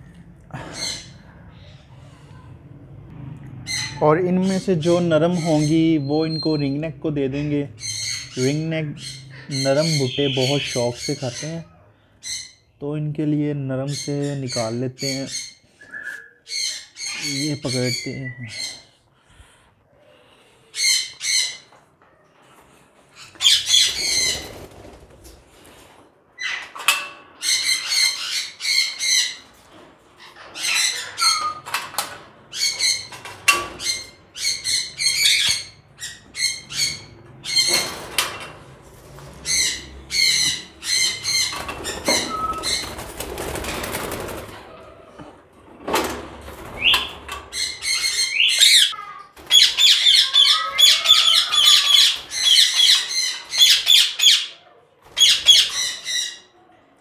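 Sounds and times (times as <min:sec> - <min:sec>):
parrots squawking: 0:00.6 - 0:02.4, 0:03.6 - 0:12.8, 0:16.4 - 0:19.1, 0:20.4 - 0:21.8, 0:23.1 - 0:24.7, 0:26.4 - 0:45.2, 0:46.6 - 0:56.6.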